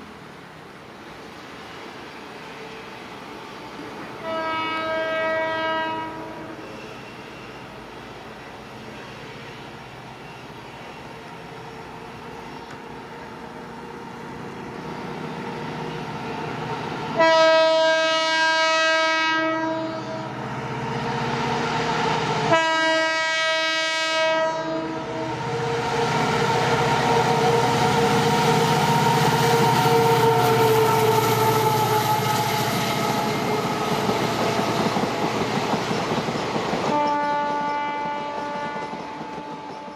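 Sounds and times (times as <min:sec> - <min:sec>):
diesel locomotive engine: 0:00.0 - 0:39.9
train running past: 0:00.0 - 0:39.9
train horn blasts: 0:04.2 - 0:07.7, 0:17.2 - 0:20.4, 0:22.4 - 0:34.7, 0:36.9 - 0:39.9.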